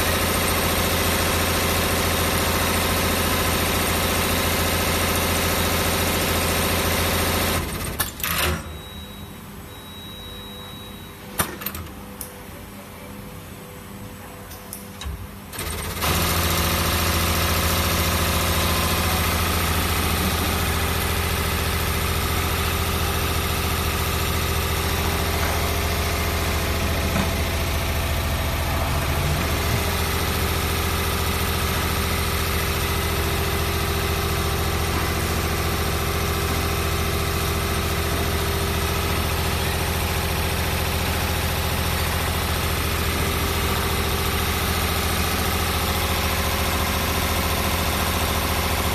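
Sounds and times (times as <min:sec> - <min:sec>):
winding machine hum and drone: 0:15.6 - 0:34.1.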